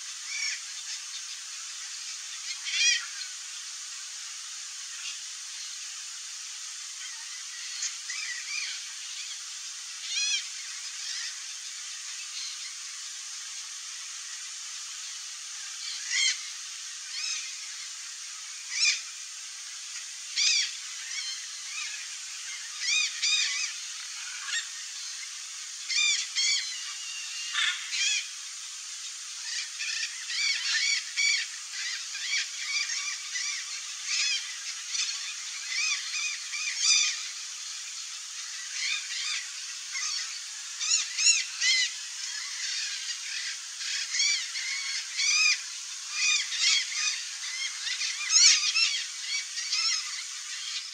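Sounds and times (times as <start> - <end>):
faint steady hiss: 0.0 - 50.9
birds harsh calls: 20.3 - 50.9.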